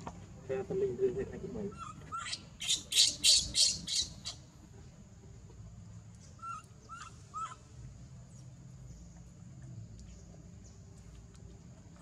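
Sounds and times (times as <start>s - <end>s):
baby monkey crying: 1.6s - 4.5s, 6.4s - 7.7s.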